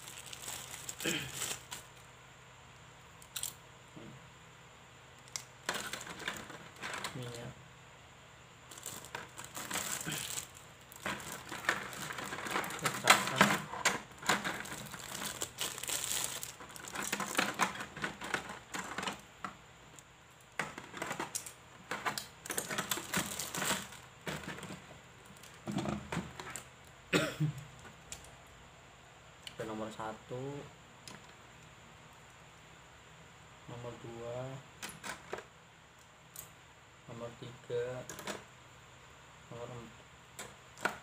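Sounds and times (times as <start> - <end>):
plastic bags crinkling: 0.0 - 2.1, 5.2 - 7.4, 8.7 - 19.2, 20.6 - 26.6.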